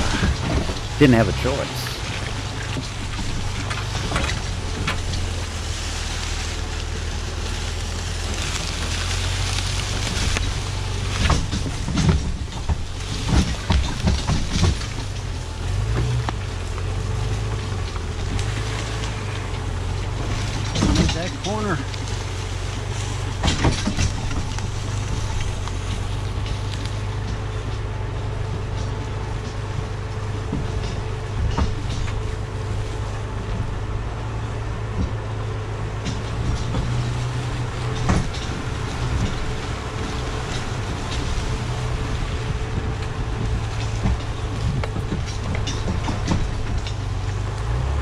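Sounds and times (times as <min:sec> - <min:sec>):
car engine droning: 0:00.0 - 0:48.0
knocks and rattles from rig: 0:11.2 - 0:18.8, 0:19.6 - 0:22.0, 0:22.7 - 0:32.7, 0:34.9 - 0:47.9.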